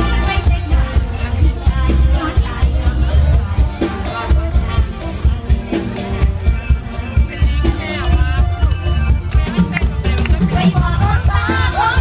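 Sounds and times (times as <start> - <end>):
live band music: 0.0 - 12.0
person singing: 0.0 - 12.0
pulsing bass beat: 0.0 - 12.0.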